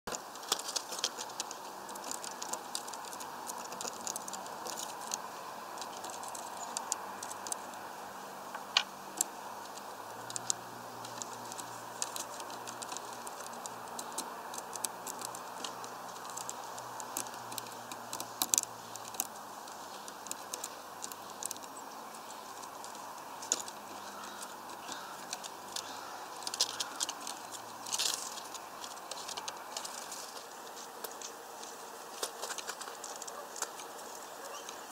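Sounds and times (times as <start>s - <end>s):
light clicks and taps: 0.1s - 7.8s, 8.5s - 34.8s
background hiss: 0.1s - 34.9s.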